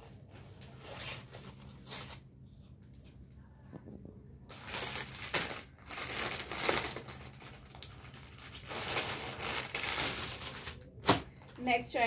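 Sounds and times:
plastic packaging crinkling: 0:04.5 - 0:11.3.

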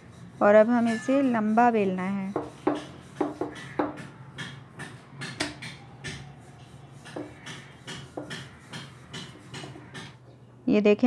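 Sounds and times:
rolling pin knocking on countertop: 0:02.3 - 0:06.3.

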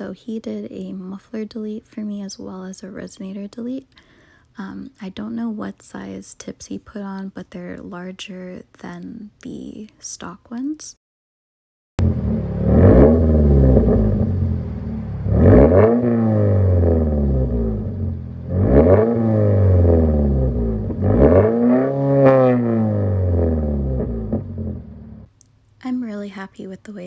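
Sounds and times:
car engine revving loudly: 0:12.0 - 0:25.3.

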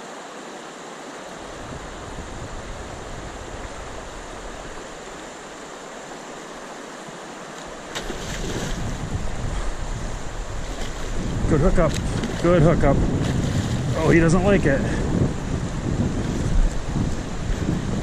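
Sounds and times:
river current rushing: 0:00.0 - 0:18.0
fish splashing at surface: 0:07.9 - 0:08.9.

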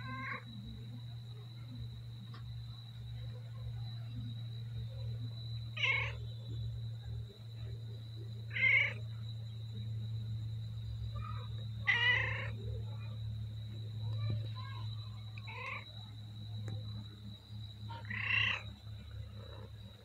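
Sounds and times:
steady low hum: 0:00.0 - 0:20.0
cat meowing: 0:05.8 - 0:06.2, 0:08.5 - 0:09.0, 0:11.3 - 0:12.6, 0:15.4 - 0:15.8, 0:17.9 - 0:18.6.

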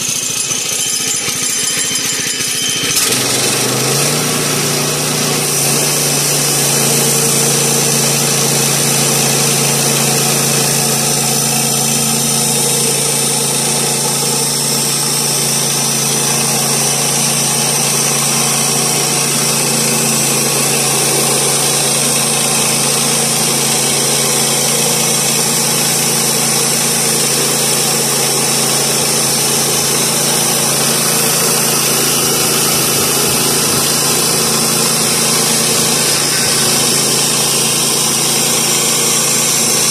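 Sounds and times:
sawmill engine running under load: 0:00.0 - 0:39.9
band blade cutting wood hiss: 0:30.8 - 0:39.6.

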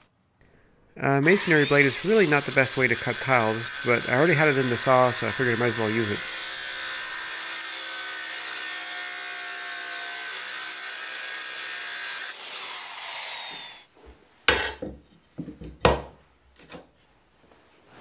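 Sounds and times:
circular saw cutting tile: 0:01.0 - 0:13.9
saw motor winding down: 0:01.1 - 0:13.9.

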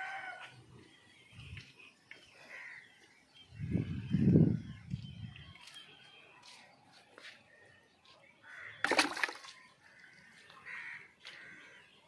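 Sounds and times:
crow cawing: 0:10.0 - 0:11.8.

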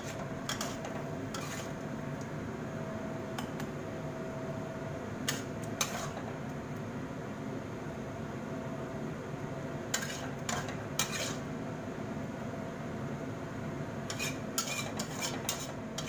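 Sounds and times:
metal spatula scraping wok: 0:00.0 - 0:01.8, 0:05.3 - 0:06.3, 0:09.9 - 0:11.5, 0:14.1 - 0:16.0
steady low hum: 0:00.0 - 0:16.0.

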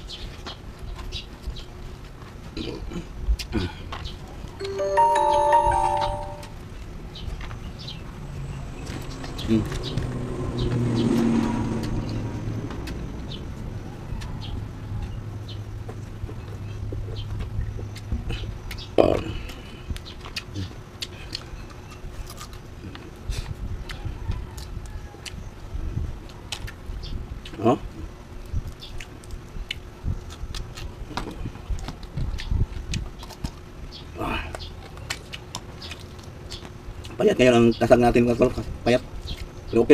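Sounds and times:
faint high chirps: 0:04.6 - 0:06.6
mouth smacking and chewing: 0:28.7 - 0:33.6, 0:34.5 - 0:37.2.

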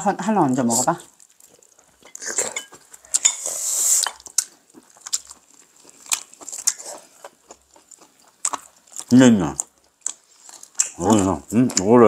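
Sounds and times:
chewing: 0:00.7 - 0:12.0
hissing slurp: 0:03.2 - 0:04.2.

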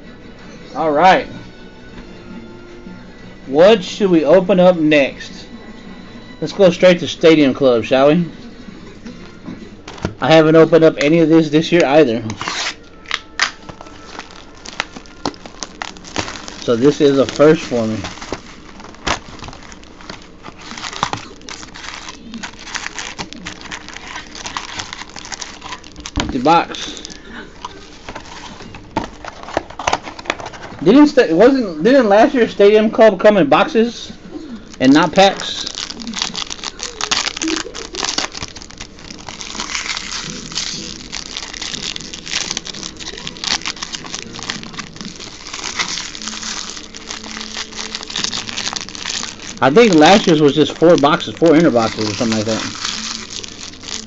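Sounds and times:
wrapper and cardboard crinkling: 0:12.3 - 0:31.1, 0:34.8 - 0:54.0.

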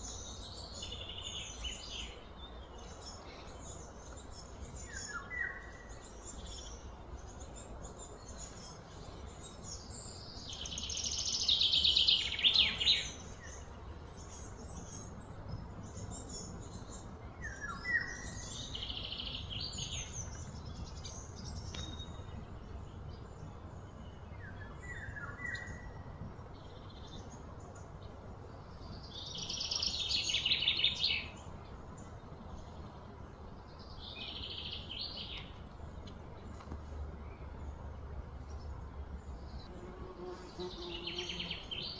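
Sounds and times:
birds chirping: 0:00.0 - 0:41.9.

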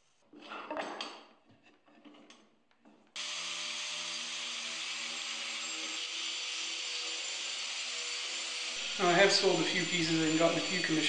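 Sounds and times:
angle grinder cutting wood: 0:03.2 - 0:11.0.

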